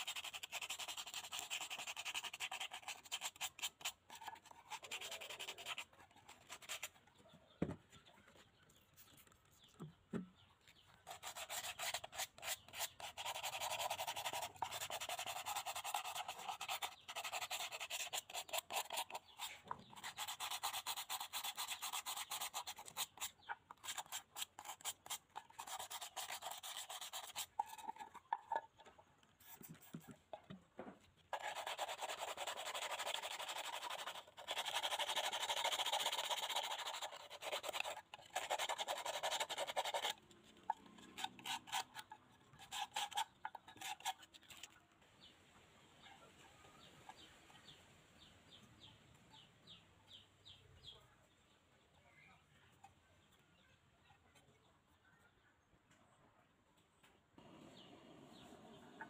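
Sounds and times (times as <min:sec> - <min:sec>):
sponge scrubbing rusty steel: 0:00.0 - 0:07.0, 0:11.0 - 0:30.4, 0:31.3 - 0:44.7.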